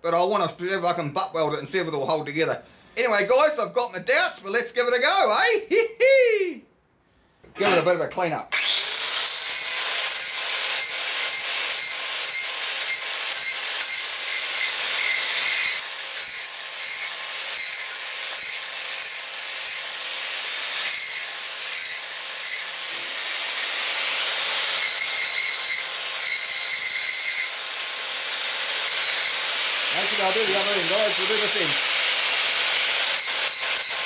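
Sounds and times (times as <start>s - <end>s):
angle grinder grinding steel: 8.6s - 34.0s
grinder motor whine: 8.6s - 34.0s.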